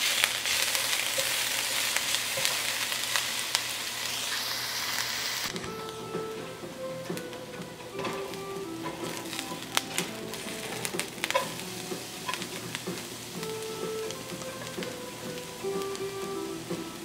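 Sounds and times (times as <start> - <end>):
ginger sizzling in hot oil: 0.0 - 17.0
spatula tapping pan: 5.5 - 17.0
spatula stirring and scraping: 8.8 - 15.5.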